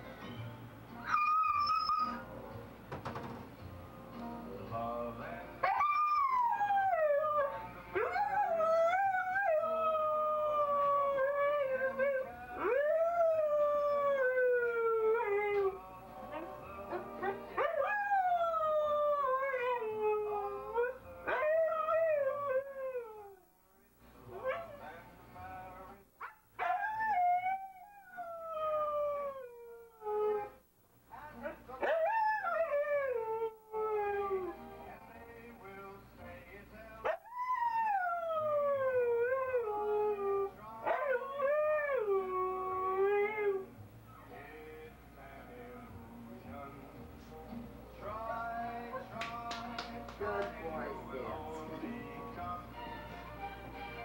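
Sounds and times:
song on television: 0:00.0 - 0:54.0
dog howling: 0:01.1 - 0:02.2.

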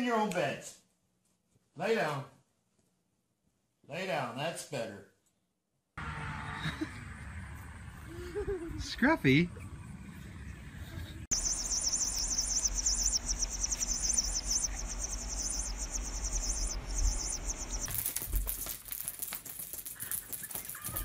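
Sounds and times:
low hum: 0:09.4 - 0:18.7
high rapid pulsed chirping: 0:11.3 - 0:17.9.

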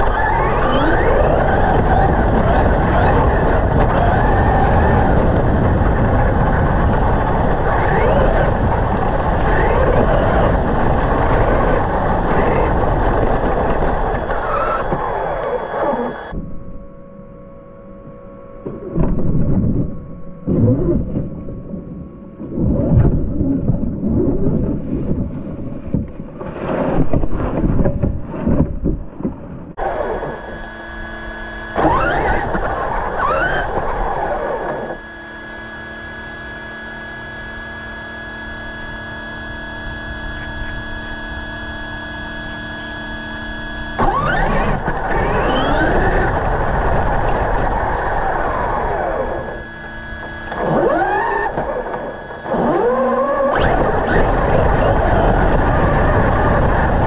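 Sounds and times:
electric motor whining: 0:00.0 - 0:16.5, 0:29.8 - 0:57.0
rough rumbling noise: 0:00.0 - 0:17.4, 0:44.0 - 0:57.0
steady hum: 0:00.0 - 0:57.0.

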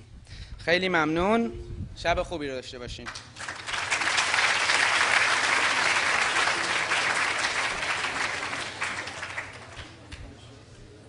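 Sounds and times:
audience applauding: 0:03.1 - 0:10.4.

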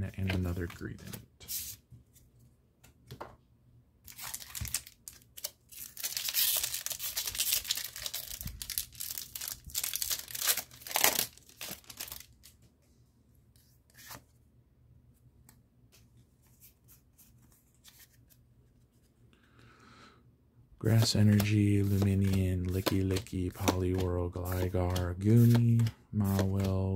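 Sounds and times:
foil wrapper tearing and crinkling: 0:04.1 - 0:12.4.

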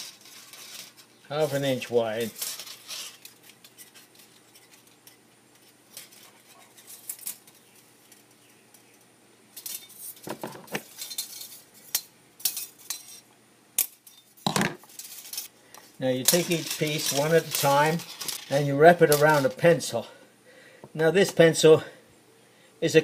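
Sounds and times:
aluminium strip crinkling and clicking: 0:02.3 - 0:12.1.

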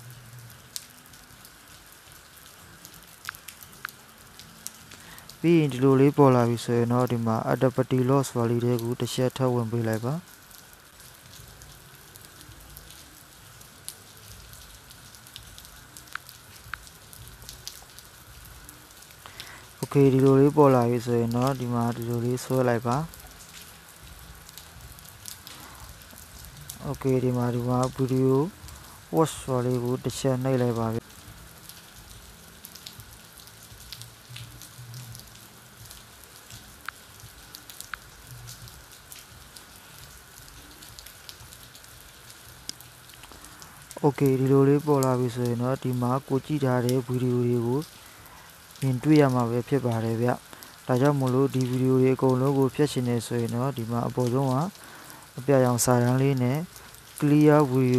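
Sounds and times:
low hum and hiss: 0:00.0 - 0:57.9
faint crackles: 0:00.1 - 0:05.5, 0:09.7 - 0:57.9
light ticks: 0:03.2 - 0:04.0, 0:16.1 - 0:16.9.

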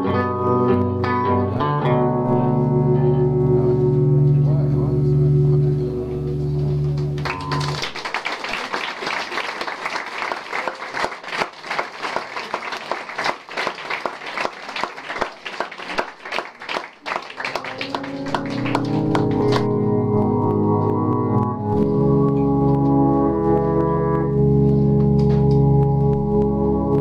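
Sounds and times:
sustained organ-like drone: 0:17.4 - 0:27.0.

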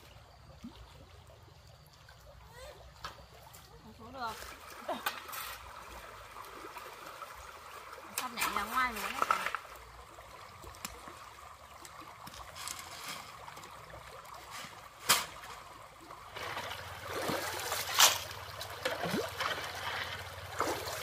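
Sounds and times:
shallow stream running: 0:00.0 - 0:21.0
water splashes: 0:00.0 - 0:21.0
shovel scraping stones and gravel: 0:12.5 - 0:13.4, 0:14.4 - 0:15.6, 0:17.7 - 0:18.4.

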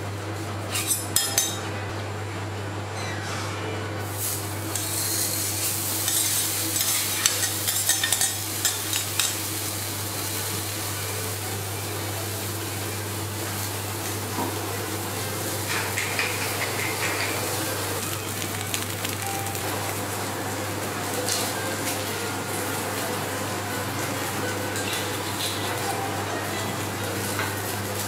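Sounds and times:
meat sizzling on a griddle: 0:04.0 - 0:20.1.

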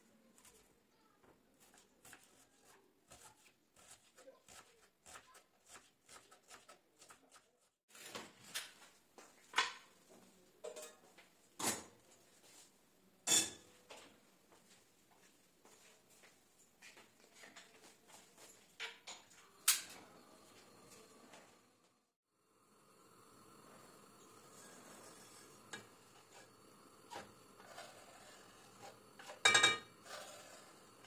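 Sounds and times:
kitchen knocks and clatters: 0:07.9 - 0:12.0, 0:13.2 - 0:14.2, 0:17.3 - 0:20.1, 0:28.7 - 0:30.0.

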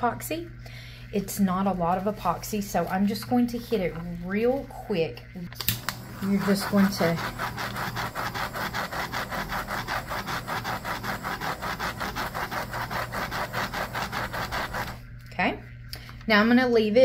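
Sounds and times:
heat gun blowing with pulsing: 0:05.6 - 0:15.0.

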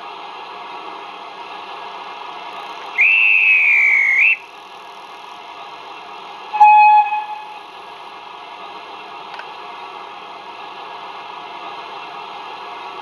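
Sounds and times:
steam hiss: 0:00.7 - 0:05.4
train whistle blast: 0:03.0 - 0:04.4, 0:06.5 - 0:07.6.

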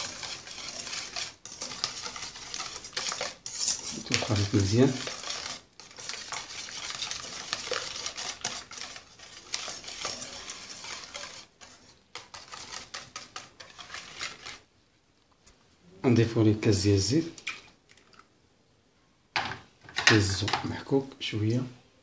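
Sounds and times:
wire whisk beating in metal bowl: 0:00.0 - 0:14.6.

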